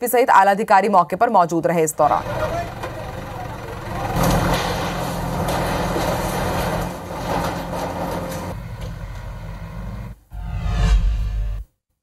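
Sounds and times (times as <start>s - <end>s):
diesel engine running: 1.9s - 10.3s
rattling noise: 2.0s - 9.4s.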